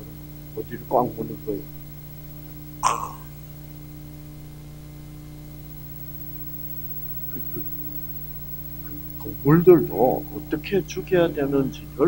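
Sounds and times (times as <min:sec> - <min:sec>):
electrical mains hum: 0:00.0 - 0:12.0
short breathy vocal sound: 0:02.8 - 0:03.4.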